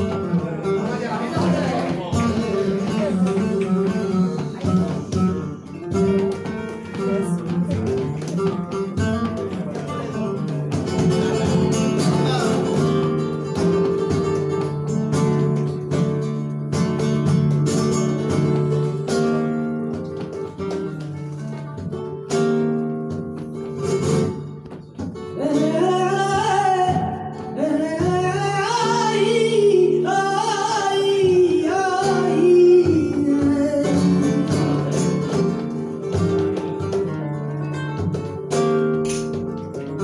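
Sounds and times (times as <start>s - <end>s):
man singing: 0.0s - 5.6s
flamenco guitar: 0.0s - 40.0s.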